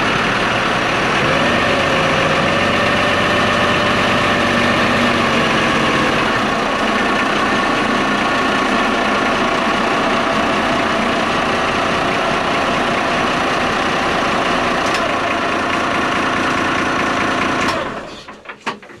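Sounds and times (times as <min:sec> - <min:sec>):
marine diesel engine running: 0:00.0 - 0:19.0.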